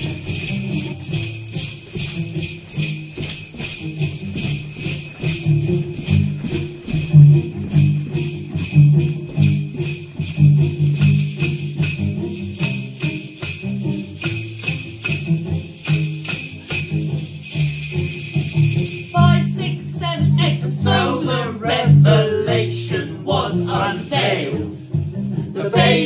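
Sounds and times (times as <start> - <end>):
jingle bells shaken: 0.0 - 20.6, 23.7 - 26.0
backing music with bass line: 0.0 - 26.0
people singing: 19.2 - 24.8, 25.4 - 26.0.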